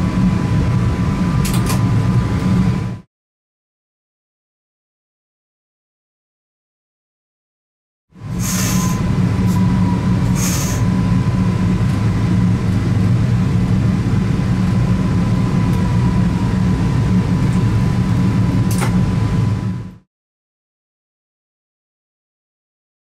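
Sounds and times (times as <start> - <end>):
train cab low hum: 0.0 - 3.1, 8.2 - 20.1
short hisses: 8.4 - 9.0, 10.3 - 10.9.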